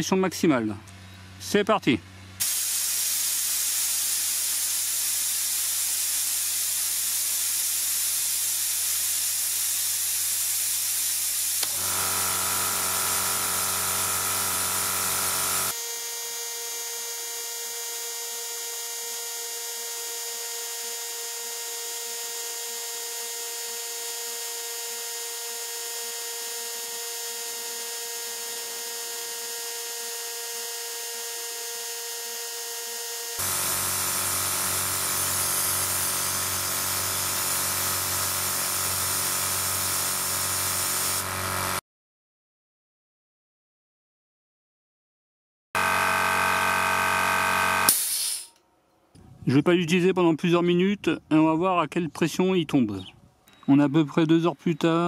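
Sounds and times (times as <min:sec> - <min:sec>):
compressed air blow gun hissing: 0:02.4 - 0:15.8, 0:33.4 - 0:41.8, 0:47.9 - 0:48.5.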